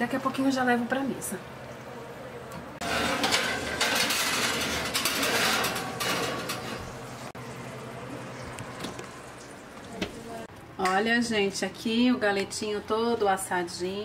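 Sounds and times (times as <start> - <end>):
baking dish scraping on oven rack: 2.8 - 7.4.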